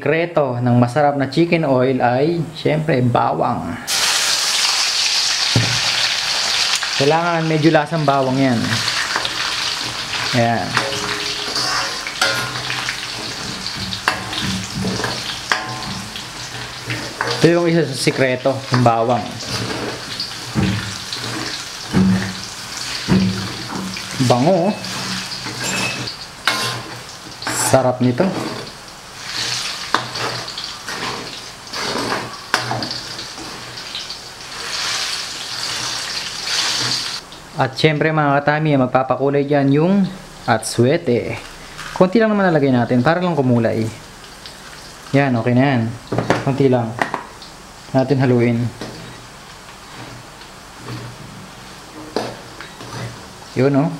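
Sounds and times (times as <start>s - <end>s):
garlic sizzling in oil: 3.9s - 37.6s, 42.8s - 53.9s
metal spatula clinking on wok: 10.7s - 13.2s.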